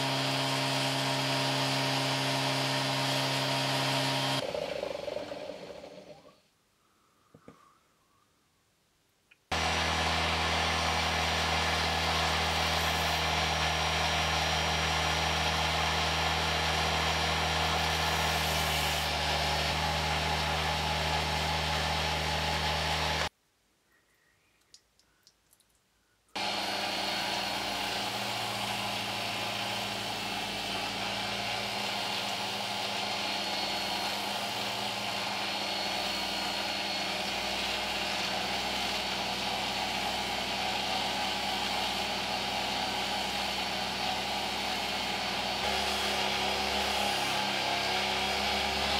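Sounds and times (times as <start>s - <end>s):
rotary tool engraving slate: 9.5s - 14.6s, 15.2s - 19.8s, 44.0s - 48.9s
faint clicks: 24.5s - 25.9s.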